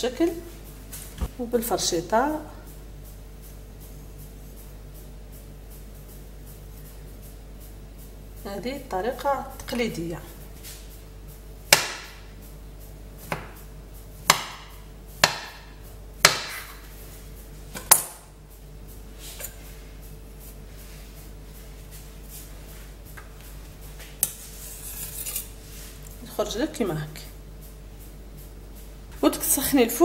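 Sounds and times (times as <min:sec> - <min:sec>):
knife cutting soft dough: 0:16.2 - 0:16.9, 0:24.2 - 0:25.6.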